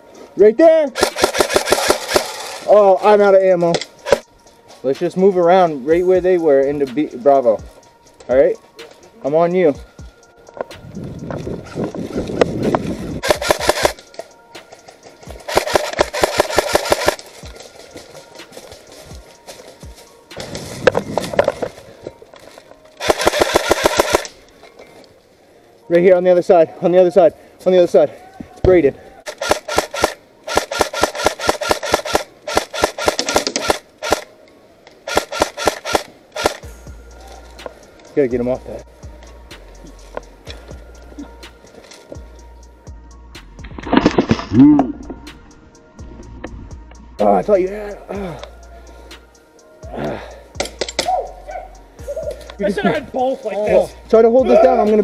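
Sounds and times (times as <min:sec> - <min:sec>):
airsoft rifle firing bursts: 0:01.0 - 0:02.7, 0:13.2 - 0:14.0, 0:15.4 - 0:17.3, 0:23.0 - 0:24.3, 0:29.3 - 0:34.3, 0:35.1 - 0:36.6.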